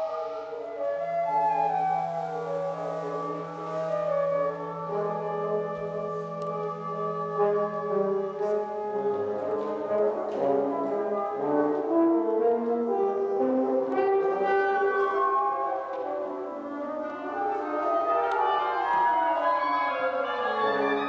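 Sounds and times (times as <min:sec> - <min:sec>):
woodwind quintet playing: 0:00.0 - 0:21.0.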